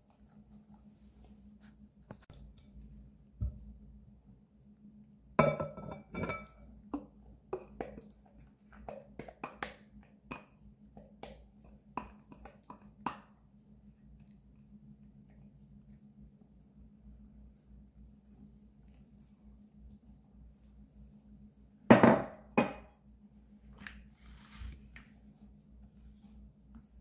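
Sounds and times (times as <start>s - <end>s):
glass clinking on glass: 5.4s - 6.6s.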